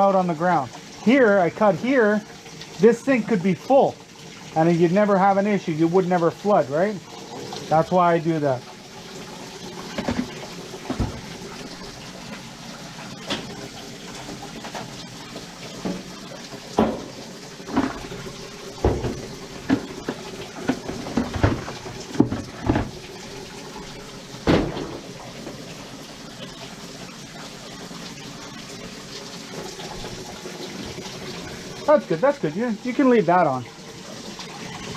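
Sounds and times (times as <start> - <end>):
tools knocking and clattering: 16.8 - 18.2, 18.8 - 23.0.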